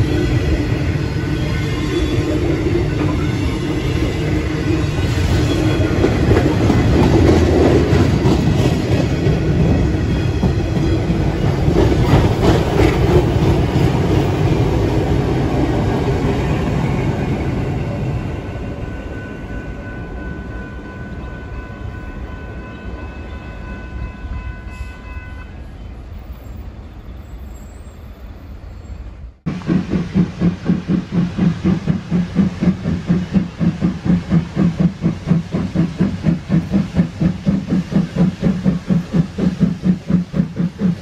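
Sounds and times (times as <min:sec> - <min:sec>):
steam locomotive exhaust beats: 0:00.0 - 0:24.4, 0:29.4 - 0:41.0
diesel locomotives rumbling: 0:00.0 - 0:41.0.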